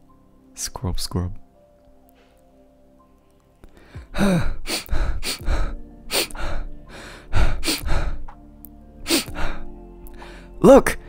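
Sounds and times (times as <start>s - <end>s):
man panting heavily: 3.8s - 8.3s, 9.0s - 10.6s.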